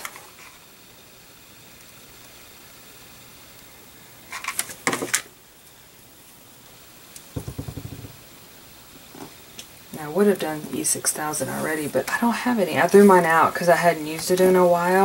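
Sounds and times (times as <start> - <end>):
crinkly plastic rustling: 4.2 - 5.3.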